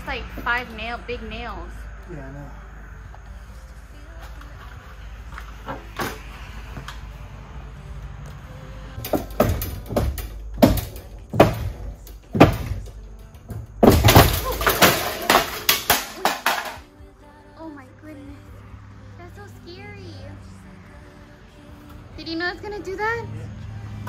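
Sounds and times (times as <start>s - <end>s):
sharp knocks on metal rail: 9.0s - 12.9s
metal rail crashing down: 13.8s - 16.9s.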